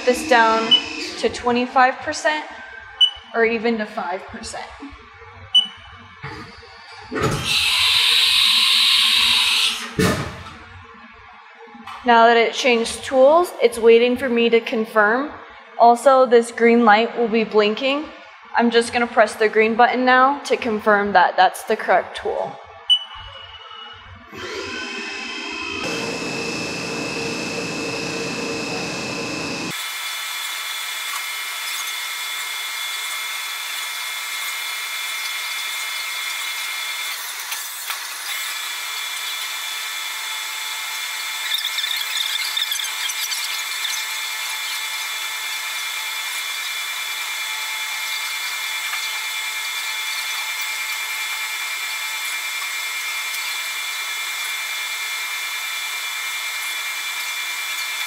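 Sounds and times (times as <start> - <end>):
milling machine whining: 0.0 - 1.7, 24.3 - 30.0.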